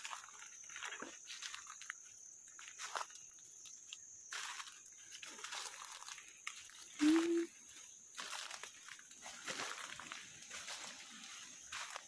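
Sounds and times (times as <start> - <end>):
footsteps in dry leaves: 0.0 - 12.0
high-pitched insect drone: 0.0 - 12.0
low hum-like call: 7.0 - 7.5.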